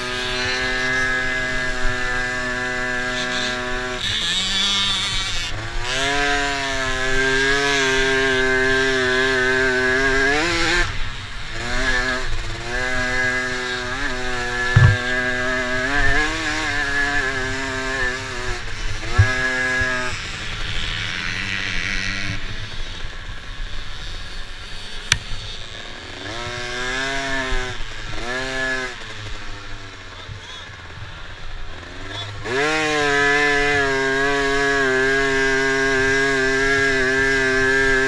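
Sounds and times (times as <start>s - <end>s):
dirt bike engine revving: 0.0s - 38.0s
thumps: 14.7s - 15.1s.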